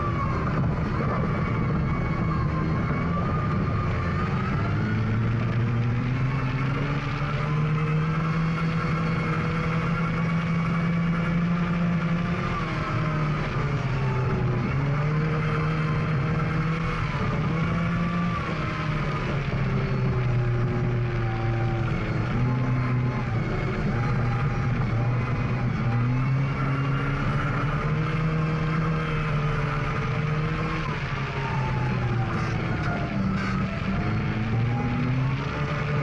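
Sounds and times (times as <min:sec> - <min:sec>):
rally car engine at high revs: 0:00.0 - 0:36.0.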